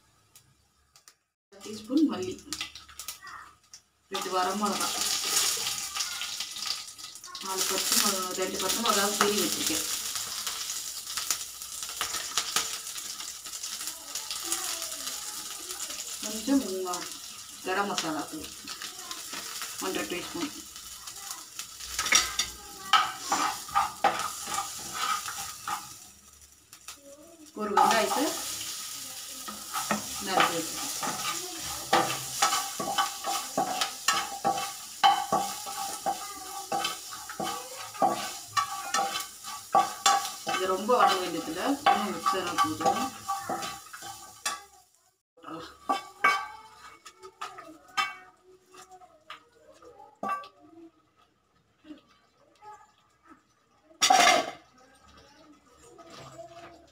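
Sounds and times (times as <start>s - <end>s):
spices sizzling in oil: 0.0s - 56.9s
spatula scraping frying pan: 15.3s - 44.8s, 45.5s - 48.9s.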